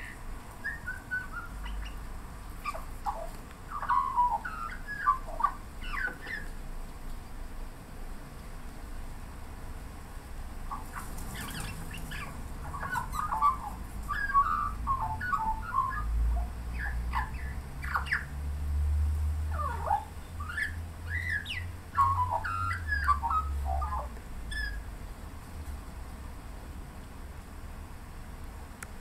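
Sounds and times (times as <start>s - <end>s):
magpie warbling song: 0.0s - 2.0s, 2.6s - 6.5s, 10.7s - 18.3s, 19.5s - 24.8s.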